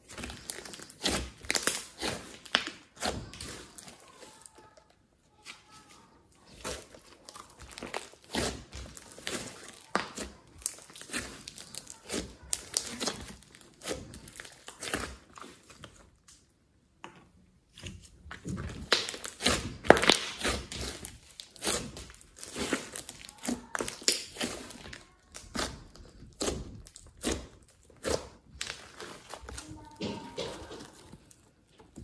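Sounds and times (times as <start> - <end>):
slime squelching: 0.0 - 32.0.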